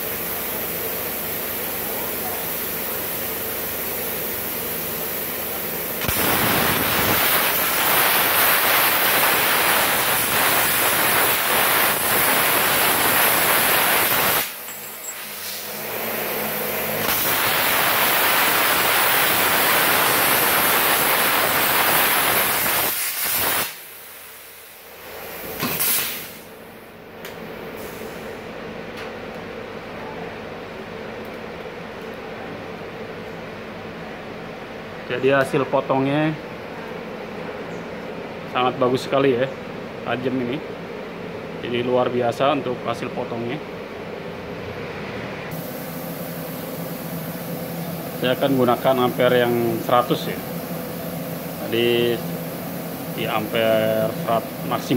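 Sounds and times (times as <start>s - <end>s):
plasma cutter hissing: 0.0s - 26.7s, 27.8s - 28.3s, 45.5s - 54.9s.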